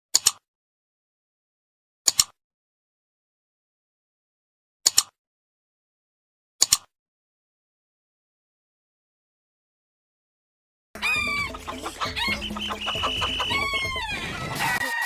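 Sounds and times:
computer mouse clicks: 0.2s - 0.4s, 2.1s - 2.4s, 4.9s - 5.2s, 6.6s - 6.9s.

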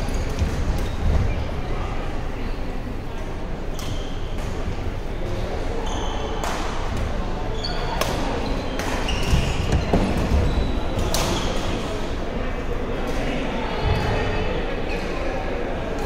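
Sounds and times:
echoing voices in hall: 0.0s - 16.0s
shoes squeaking on gym floor: 7.6s - 11.6s.

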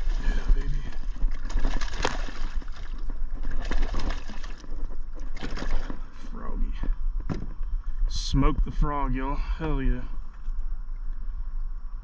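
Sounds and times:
fish splashing in water: 0.0s - 6.1s
steady low rumble: 0.0s - 12.0s.

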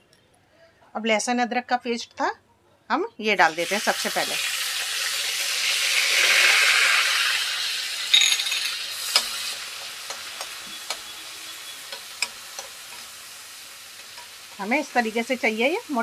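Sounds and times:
paste sizzling in hot oil: 3.4s - 16.0s.

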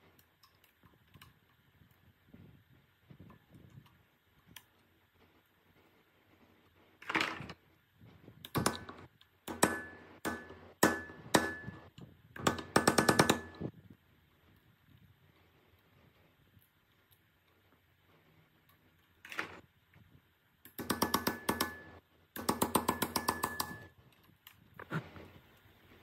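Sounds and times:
fast hammer taps: 8.5s - 13.7s, 20.7s - 23.9s
hammer striking metal punch: 8.6s - 13.7s.

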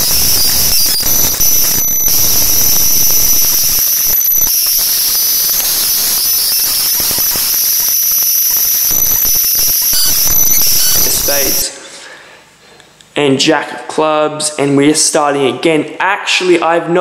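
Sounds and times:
electrical hiss: 0.0s - 11.7s
high-pitched whines: 0.0s - 11.8s.

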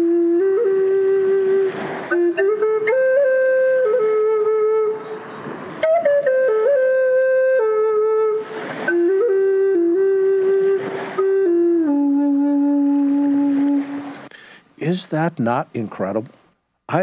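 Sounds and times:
solo flute melody: 0.0s - 14.3s
breathy hiss: 8.4s - 8.9s, 13.9s - 15.0s.

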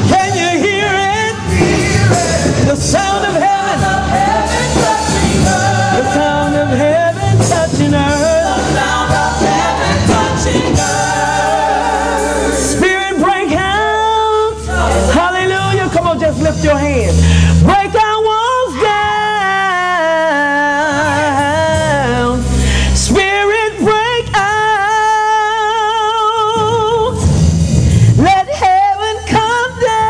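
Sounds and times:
group singing worship song: 0.0s - 15.7s
instrumental accompaniment: 0.0s - 17.2s.

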